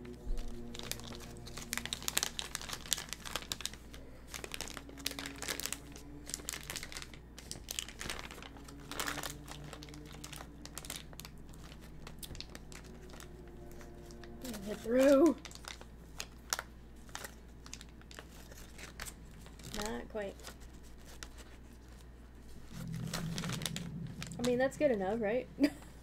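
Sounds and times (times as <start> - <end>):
plastic bag crinkling: 0.0 - 25.2.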